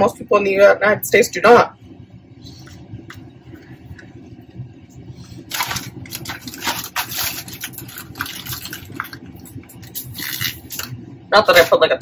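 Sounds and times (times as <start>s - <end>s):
steady low hum: 0.0s - 12.0s
rustling and handling noises: 5.0s - 11.0s.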